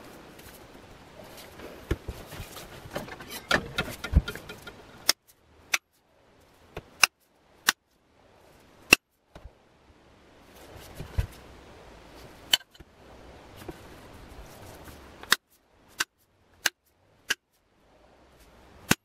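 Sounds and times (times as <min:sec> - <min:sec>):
handling and rustling: 0:00.0 - 0:09.6, 0:10.4 - 0:12.8, 0:13.5 - 0:16.3.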